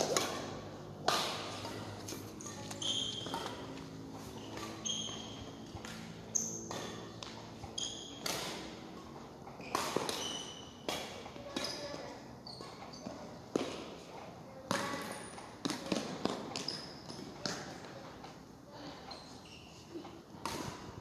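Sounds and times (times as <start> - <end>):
shuttlecock hit with rackets: 0.0 - 2.2, 9.6 - 11.7
shoes squeaking on floor: 1.6 - 10.8, 11.5 - 13.4, 16.3 - 17.6, 18.8 - 20.1.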